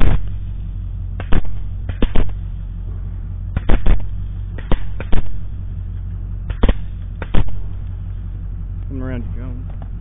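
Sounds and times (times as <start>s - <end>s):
rifle shots: 0.0s - 0.5s, 1.2s - 2.5s, 3.5s - 5.6s, 6.4s - 7.8s
steady low hum: 0.0s - 10.0s.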